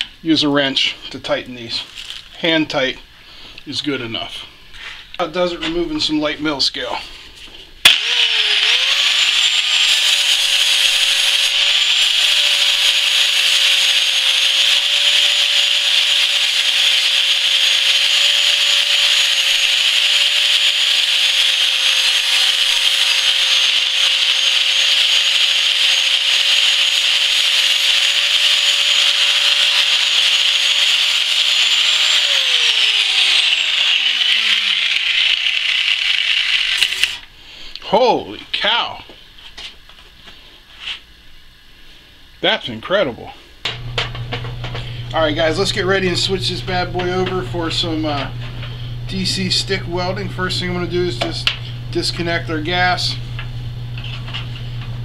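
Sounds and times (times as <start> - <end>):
angle grinder grinding steel: 7.8 - 37.3, 43.7 - 54.9
grinder motor winding down: 7.8 - 37.3, 43.7 - 55.0.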